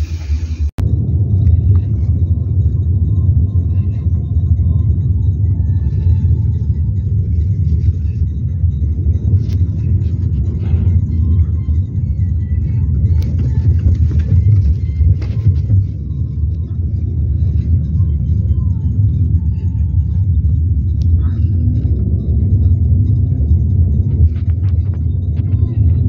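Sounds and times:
car road rumble from inside: 0.0 - 26.0.

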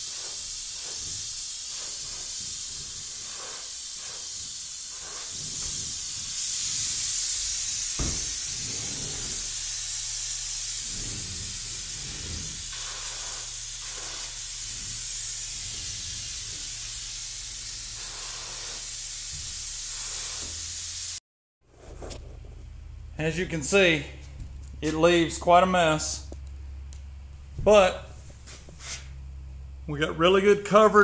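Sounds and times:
spray gun air hiss: 0.0 - 21.2.

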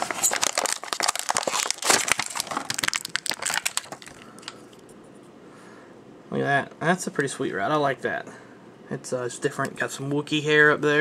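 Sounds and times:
plastic packaging crackling: 0.0 - 4.9.

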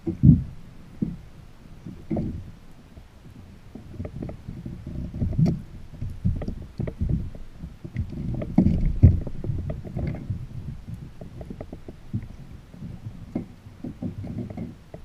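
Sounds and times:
water slapping against kayak hull: 3.8 - 15.0.

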